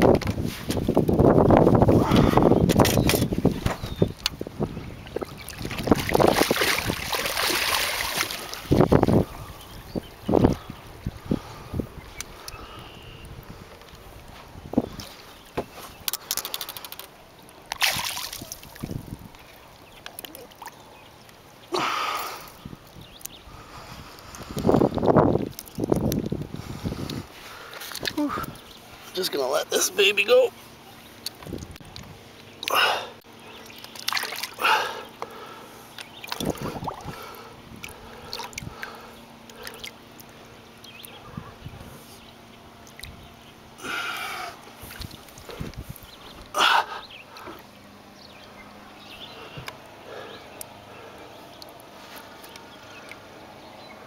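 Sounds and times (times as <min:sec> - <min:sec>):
water splashing from thrashing fish: 0:05.2 - 0:08.9, 0:17.7 - 0:19.1, 0:33.8 - 0:35.0
quick clicks: 0:16.1 - 0:17.1.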